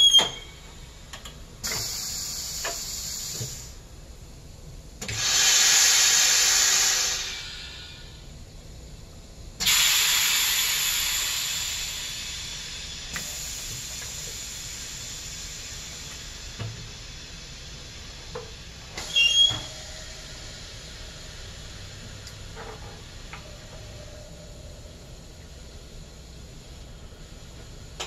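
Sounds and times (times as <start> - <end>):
short squeak: 0.0 - 0.6, 19.0 - 19.8
compressed air hiss: 1.6 - 3.8, 5.0 - 8.2, 9.6 - 23.8.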